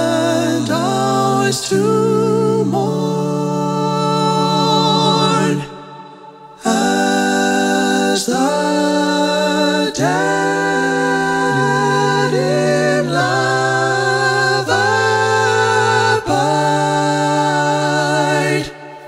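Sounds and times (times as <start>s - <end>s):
a cappella hymn singing: 0.0s - 19.0s.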